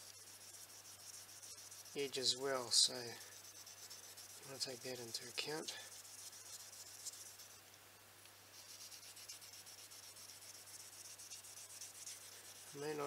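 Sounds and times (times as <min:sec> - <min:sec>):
knife blade scratching on sandpaper: 0:00.0 - 0:07.6, 0:08.6 - 0:13.0.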